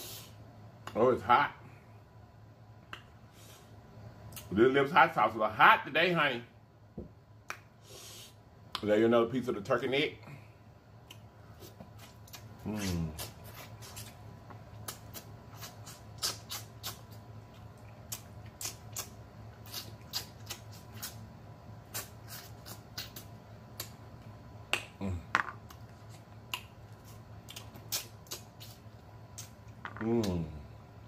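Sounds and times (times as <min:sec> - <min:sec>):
wet lip smacks and sucking: 0:11.0 - 0:24.0, 0:25.6 - 0:29.6
voiced mm sound: 0:11.6 - 0:14.2.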